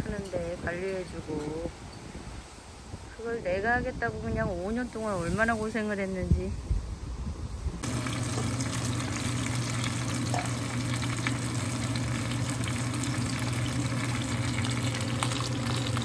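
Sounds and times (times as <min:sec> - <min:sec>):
fish sizzling in oil: 0:07.8 - 0:16.0
pot bubbling at a boil: 0:07.8 - 0:16.0.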